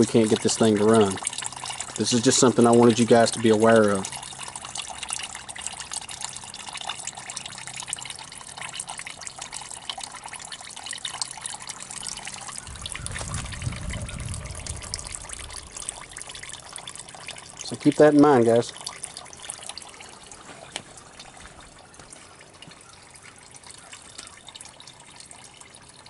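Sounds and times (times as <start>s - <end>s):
oil trickling into bucket: 0.0s - 26.0s
low rumble: 12.6s - 16.5s.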